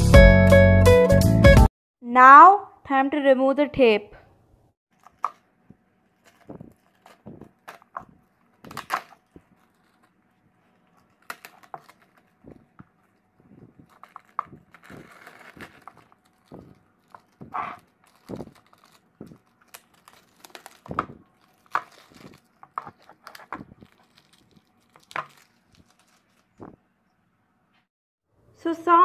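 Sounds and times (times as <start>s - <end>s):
tape peeling with crackling rips: 6.0s - 26.8s.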